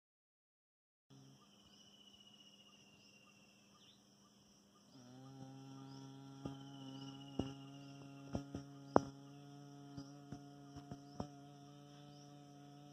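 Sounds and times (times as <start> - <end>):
insects chirring: 1.1 - 12.9
low hum: 5.0 - 12.9.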